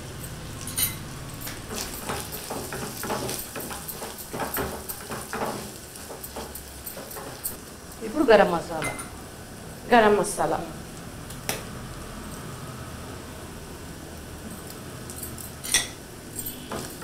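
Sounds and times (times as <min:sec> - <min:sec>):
faint sizzle: 0:00.0 - 0:17.0
wooden spatula scraping a pan: 0:01.6 - 0:07.7.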